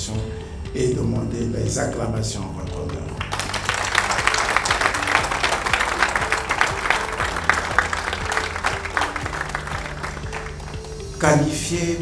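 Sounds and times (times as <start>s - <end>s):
music playing: 0.0s - 12.0s
crowd applauding: 3.1s - 11.2s.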